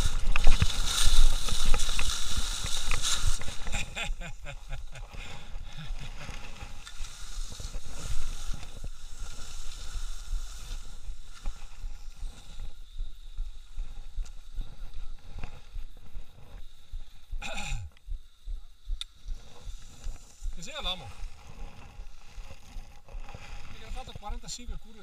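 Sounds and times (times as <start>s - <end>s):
skis scraping over snow: 0.0s - 16.9s, 19.4s - 25.0s
wind rumbling on microphone: 0.0s - 17.5s.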